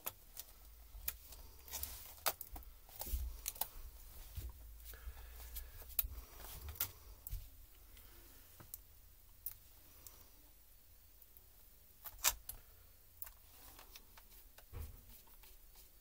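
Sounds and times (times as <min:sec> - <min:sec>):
hands handling laptop parts: 0:00.0 - 0:07.6.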